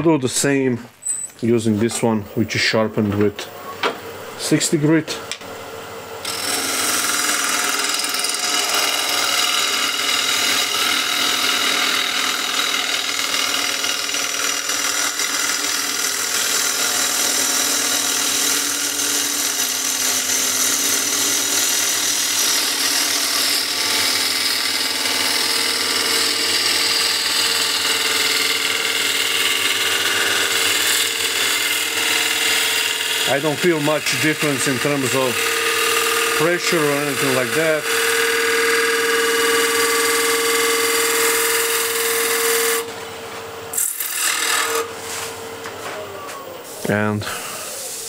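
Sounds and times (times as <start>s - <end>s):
lathe motor humming: 6.2s - 43.0s, 43.7s - 45.2s.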